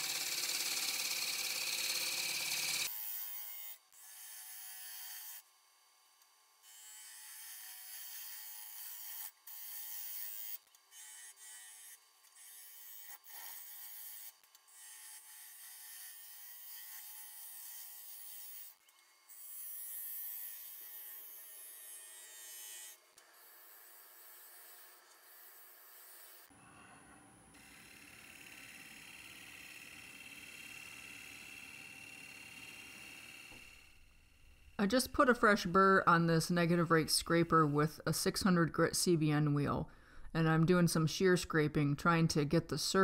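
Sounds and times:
lathe tool cutting wood: 0:00.0 - 0:03.6, 0:27.6 - 0:34.1
faint lathe hum: 0:18.2 - 0:35.6.

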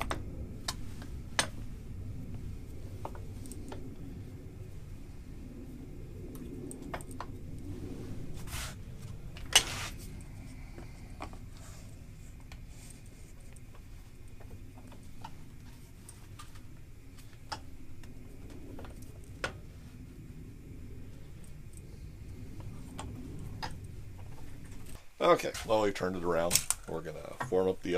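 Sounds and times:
clicks and knocks of metal and wood: 0:00.0 - 0:01.8
low hum: 0:00.0 - 0:27.9.

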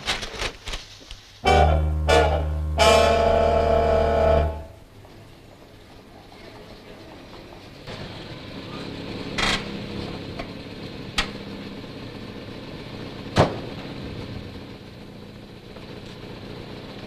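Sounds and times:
car engine running: 0:01.4 - 0:05.0, 0:07.9 - 0:17.0.

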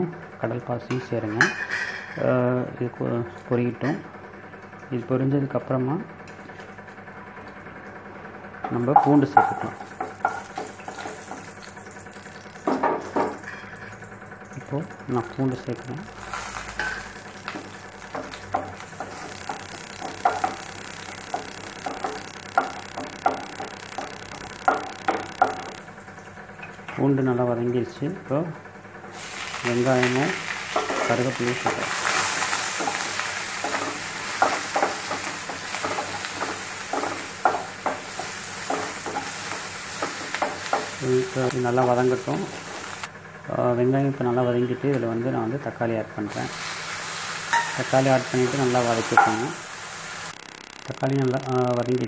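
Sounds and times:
garlic sizzling in hot oil: 0:09.4 - 0:14.1, 0:15.3 - 0:25.9, 0:29.1 - 0:43.1, 0:46.3 - 0:52.0.

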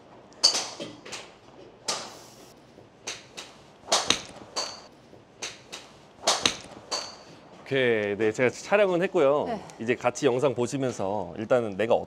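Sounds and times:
golf clubs striking balls: 0:00.4 - 0:07.4.

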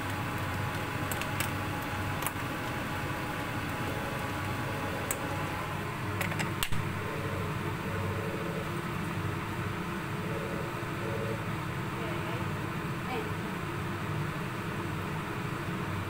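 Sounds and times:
low hum: 0:06.8 - 0:13.0.

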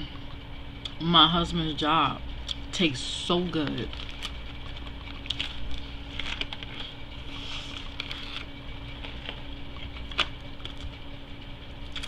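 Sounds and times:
steady low hum: 0:00.0 - 0:12.0
wet chewing mouth sounds: 0:04.3 - 0:06.8.

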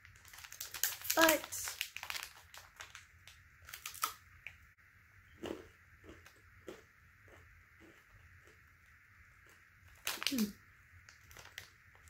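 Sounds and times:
plastic wrapper crinkling and tearing: 0:00.0 - 0:04.6, 0:09.9 - 0:12.0.

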